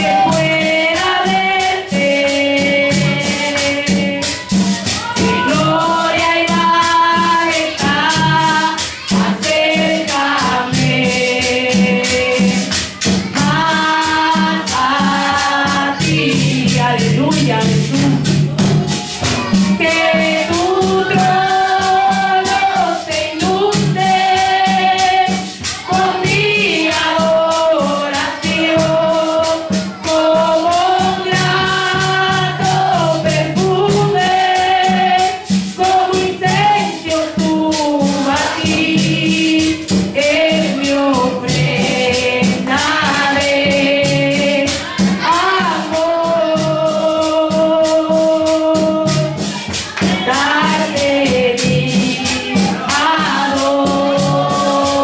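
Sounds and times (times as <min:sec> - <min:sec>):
woman singing through microphone: 0:00.0 - 0:18.4, 0:19.4 - 0:55.0
metal hand percussion shaken: 0:00.0 - 0:55.0.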